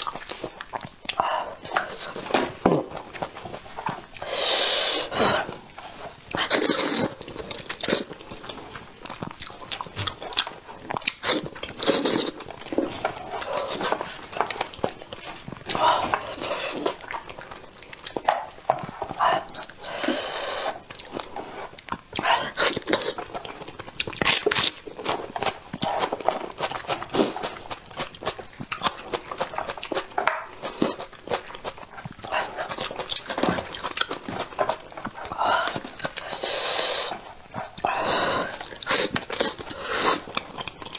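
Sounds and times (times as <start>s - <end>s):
lip smacks and chewing: 0.0s - 4.4s, 5.0s - 40.9s
wet mouth eating sounds: 0.0s - 40.9s.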